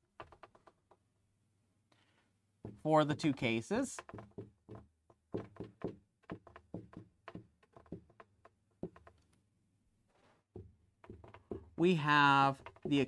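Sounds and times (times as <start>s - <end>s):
marker tapping on whiteboard: 0.2s - 1.0s, 2.6s - 9.4s, 10.5s - 13.0s.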